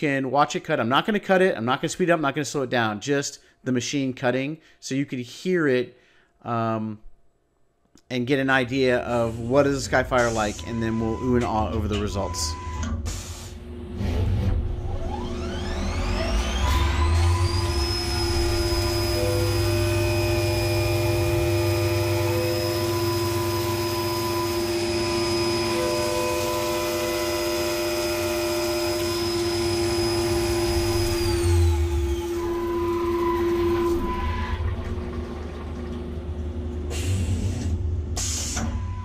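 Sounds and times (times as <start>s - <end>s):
mill spindle high whine: 8.9s - 39.0s.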